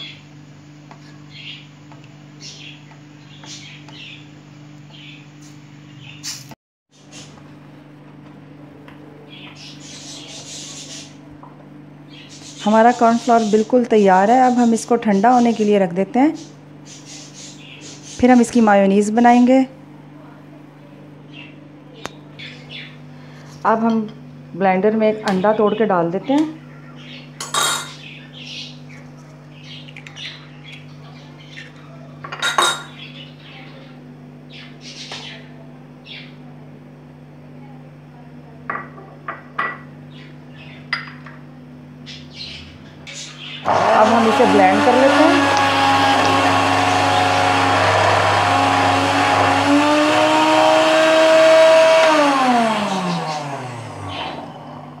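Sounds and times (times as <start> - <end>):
blender motor running: 43.6 - 55.0.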